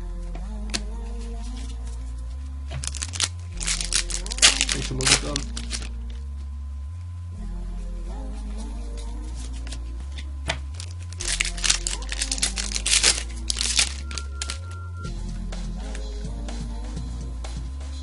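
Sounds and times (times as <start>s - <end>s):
background music: 0.0s - 6.2s, 7.3s - 18.0s
foil wrapper crinkling and tearing: 2.7s - 6.2s, 9.4s - 14.8s.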